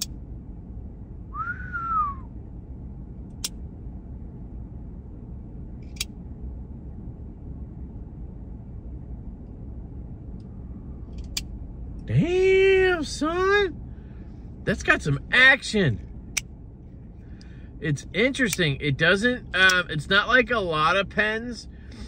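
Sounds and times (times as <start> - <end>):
steady low rumble: 0.0 - 22.0
short rising and falling whistle: 1.3 - 2.3.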